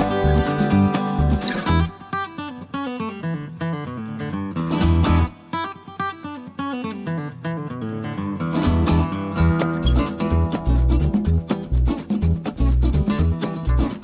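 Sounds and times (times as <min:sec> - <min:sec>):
bass: 0:00.0 - 0:01.9, 0:08.6 - 0:14.0
drums: 0:00.0 - 0:01.9, 0:08.6 - 0:14.0
acoustic guitar tune: 0:00.0 - 0:14.0.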